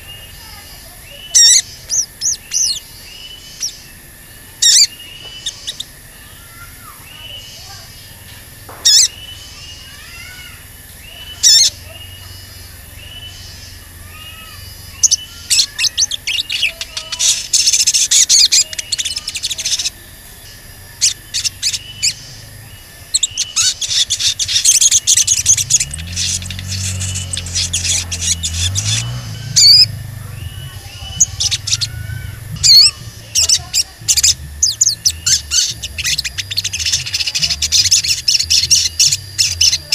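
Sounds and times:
bird chips and chattering: 0.0 - 3.8, 4.6 - 7.9, 8.7 - 10.2, 11.0 - 39.9
soft arched whistles: 11.1 - 39.9.

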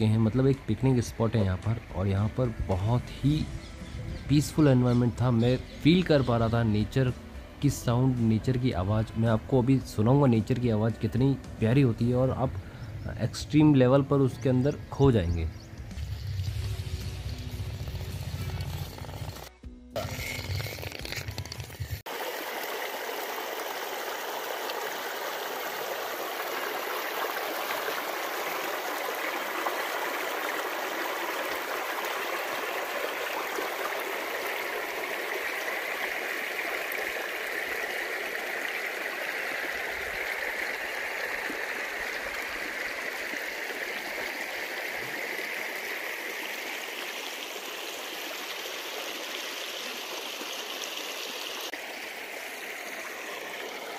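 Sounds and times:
stream babbling over rocks: 22.1 - 53.9.

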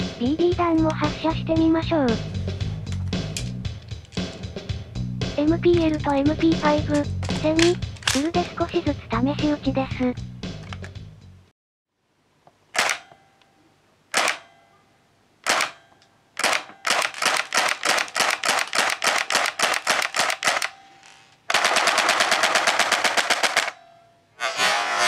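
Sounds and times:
airsoft gun firing: 12.8 - 13.1, 14.1 - 14.5, 15.4 - 15.8, 16.4 - 20.8, 21.5 - 23.8.

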